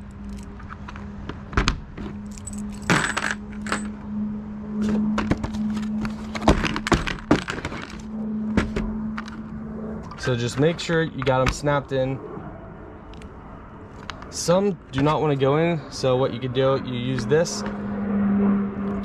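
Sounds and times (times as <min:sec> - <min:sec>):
steady low hum: 0:00.0 - 0:19.0
metal spikes clinking: 0:02.2 - 0:04.0.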